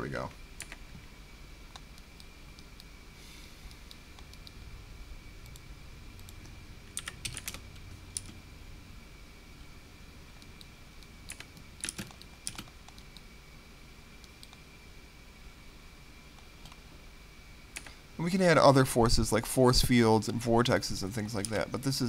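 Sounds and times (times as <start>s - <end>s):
faint high whine: 0.0s - 22.0s
keyboard keys clicking: 11.3s - 13.1s.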